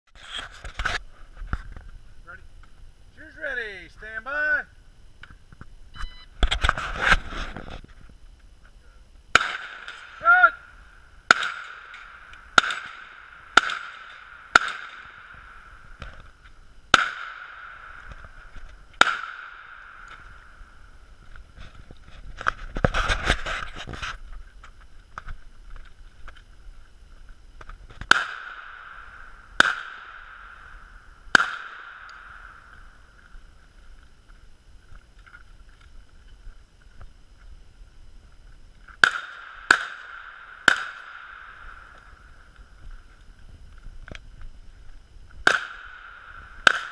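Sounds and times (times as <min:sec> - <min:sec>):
pistol shots: 0:09.3 - 0:10.2, 0:11.3 - 0:15.6, 0:16.9 - 0:18.3, 0:19.0 - 0:20.2, 0:28.0 - 0:32.8, 0:39.0 - 0:42.0, 0:45.4 - 0:46.9.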